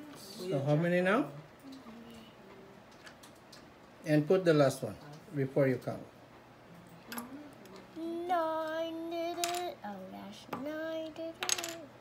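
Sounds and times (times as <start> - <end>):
person singing wordlessly: 7.9 - 12.0.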